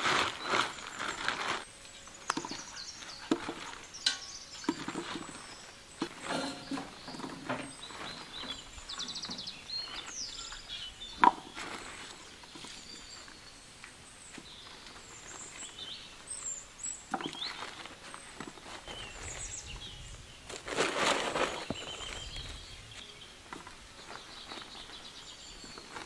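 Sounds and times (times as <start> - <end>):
birds chirping: 0.0 - 26.0
tubers knocking in wooden bowl: 6.0 - 8.6, 11.2 - 11.6.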